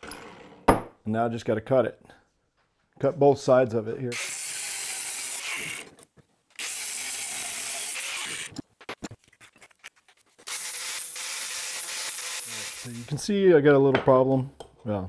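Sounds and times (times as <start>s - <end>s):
angle grinder cutting steel: 4.1s - 5.9s, 6.6s - 8.6s, 10.4s - 13.2s.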